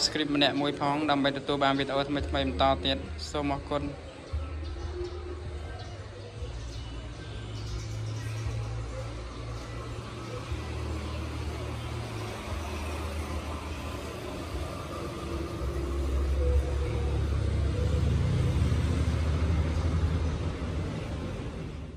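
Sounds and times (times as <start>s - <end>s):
road traffic rumble: 0.0s - 21.9s.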